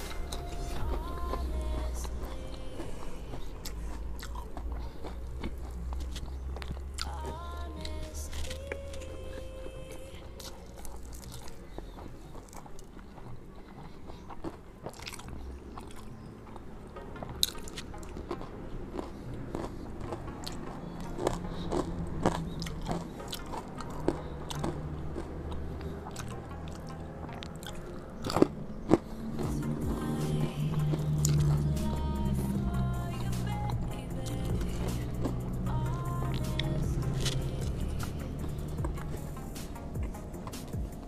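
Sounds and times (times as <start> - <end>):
low steady hum: 0.0 - 41.0
person chewing and crunching food: 0.0 - 41.0
mouth clicks and smacks: 10.4 - 32.0, 36.4 - 41.0.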